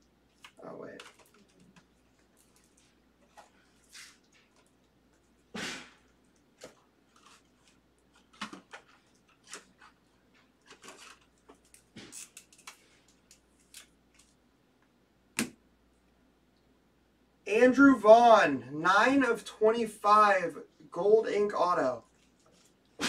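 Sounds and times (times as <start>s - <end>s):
trading cards handled and opened: 6.6s - 14.4s.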